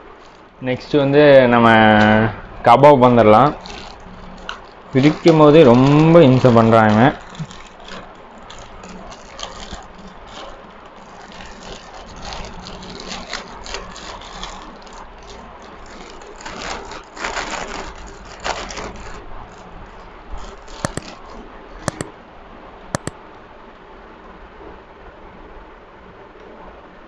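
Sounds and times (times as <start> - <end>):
aluminium foil crinkling: 2.8 - 22.1
sharp clicks: 20.8 - 21.1, 21.9 - 22.1.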